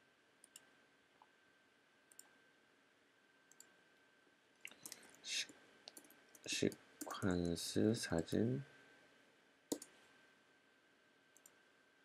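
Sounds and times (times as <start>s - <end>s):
computer mouse clicks: 0.4s - 0.7s, 2.1s - 2.4s, 3.5s - 3.8s, 4.7s - 5.2s, 5.9s - 7.3s, 9.7s - 10.0s, 11.4s - 11.6s.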